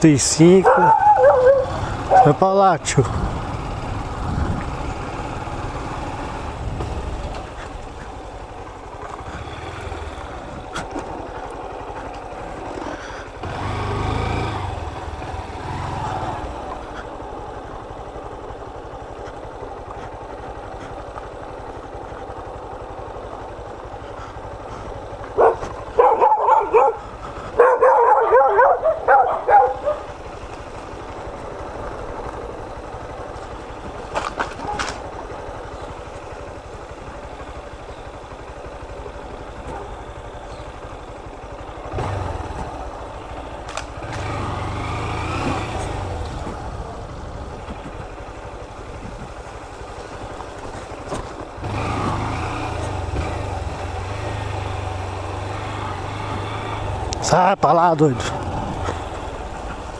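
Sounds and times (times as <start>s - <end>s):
motorcycle engine running: 0.0s - 59.9s
dog barking: 0.6s - 2.4s, 25.4s - 30.1s, 39.6s - 40.0s.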